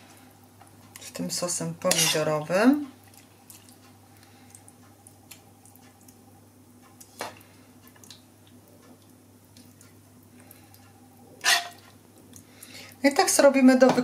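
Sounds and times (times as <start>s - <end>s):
low steady hum: 0.0s - 14.0s
spoon spreading wet sauce: 11.4s - 12.4s.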